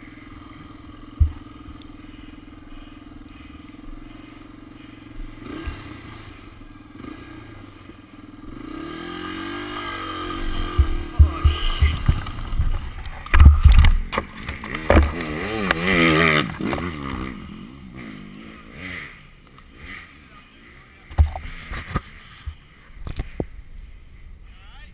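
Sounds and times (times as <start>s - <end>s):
dirt bike engine revving: 0.0s - 23.9s
heavy knocks and thumps: 10.6s - 14.1s.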